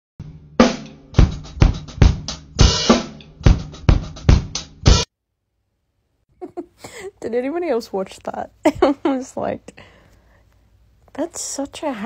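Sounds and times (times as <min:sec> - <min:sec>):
bass drum and snare strokes: 0:00.2 - 0:05.1
cymbal and hi-hat wash: 0:00.6 - 0:05.1.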